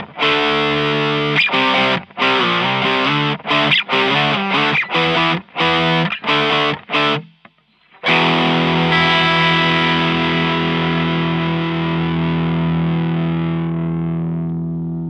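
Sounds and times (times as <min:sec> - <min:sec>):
distorted electric guitar chord ringing: 0:08.0 - 0:15.0.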